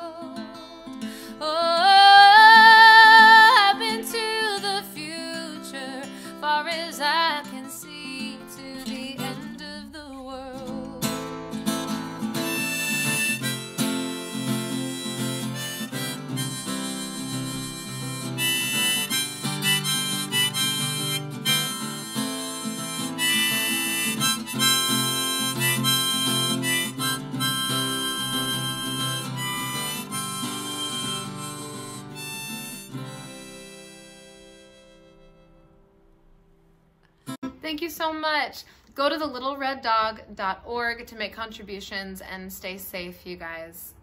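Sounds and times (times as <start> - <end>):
strummed acoustic guitar: 0.0 - 36.0
harmonica solo: 11.7 - 35.8.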